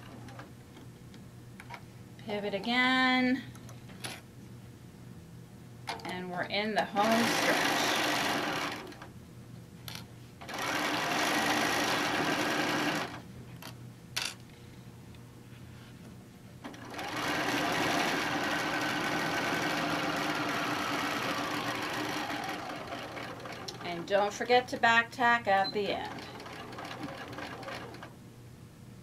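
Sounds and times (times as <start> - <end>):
sewing machine stitching: 7.0 - 9.0, 10.5 - 13.2, 16.7 - 23.9, 25.8 - 28.1.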